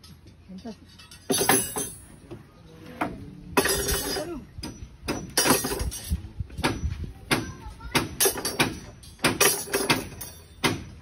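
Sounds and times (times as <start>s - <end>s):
steel rebar clinking: 0.0s - 2.4s, 3.0s - 10.9s.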